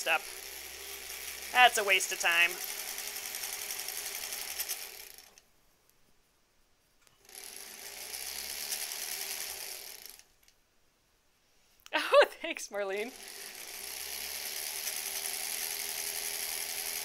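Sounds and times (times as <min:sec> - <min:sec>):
sewing machine stitching: 0:00.0 - 0:05.4, 0:07.2 - 0:10.3, 0:13.1 - 0:17.0.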